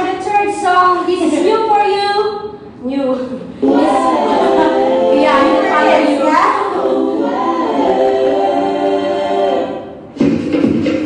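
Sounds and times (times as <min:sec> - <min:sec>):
sung vocals: 0:03.4 - 0:10.0
dance music: 0:03.6 - 0:11.0.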